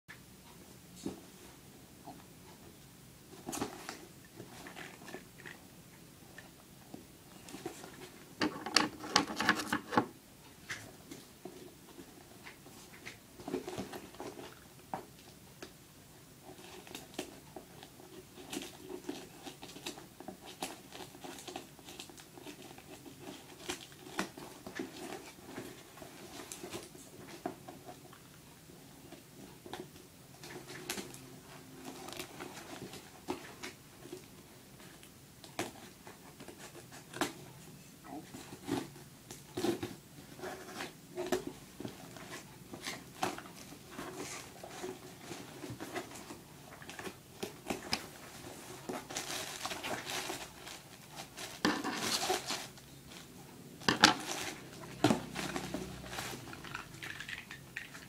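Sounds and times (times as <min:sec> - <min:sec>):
cardboard crackling: 0:38.2 - 0:58.0.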